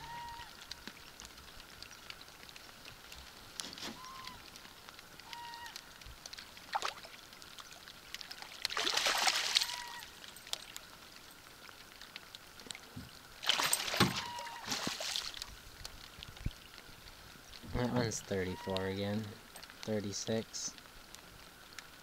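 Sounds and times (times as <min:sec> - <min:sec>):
light rain pattering on water: 0:00.0 - 0:22.0
fish thrashing and splashing: 0:06.2 - 0:11.0, 0:13.4 - 0:15.6.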